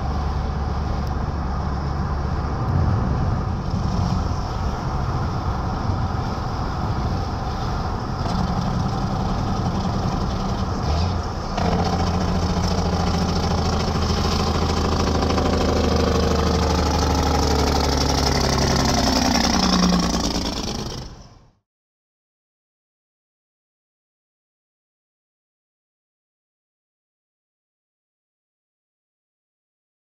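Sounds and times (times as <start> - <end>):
tyre and wind noise: 0.0 - 15.0
deep diesel exhaust drone: 0.0 - 21.6.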